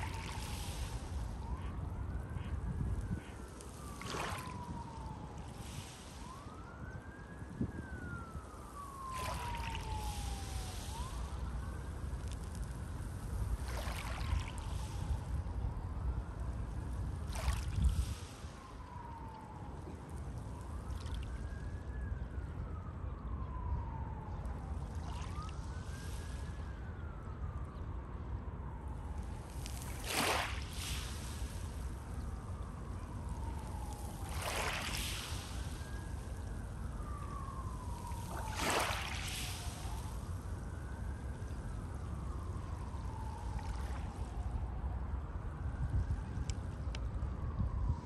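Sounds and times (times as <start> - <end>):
sea waves: 0.0 - 1.6, 4.0 - 4.8, 9.1 - 11.4, 13.6 - 15.0, 17.2 - 18.4, 29.7 - 32.0, 33.6 - 35.8, 37.9 - 40.1
emergency vehicle siren wailing: 0.0 - 48.0
wave breaking: 34.2 - 35.6, 38.2 - 39.8.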